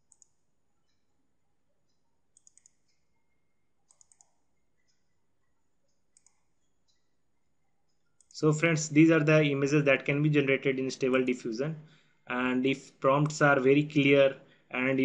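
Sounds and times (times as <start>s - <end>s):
computer mouse clicks: 0.0s - 1.1s, 1.8s - 3.2s, 3.8s - 8.3s.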